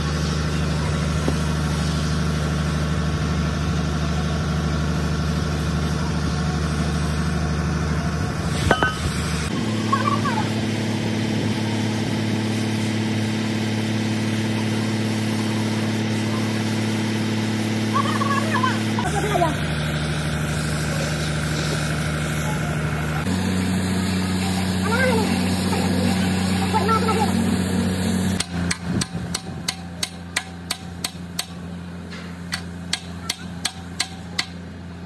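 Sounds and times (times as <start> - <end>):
engine droning: 0.0 - 35.0.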